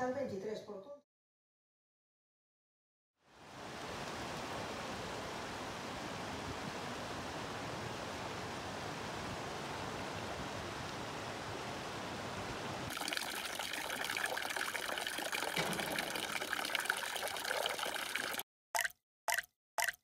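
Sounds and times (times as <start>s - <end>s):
fountain splashing into basin: 12.9s - 18.4s
water drop falling: 12.9s - 20.0s.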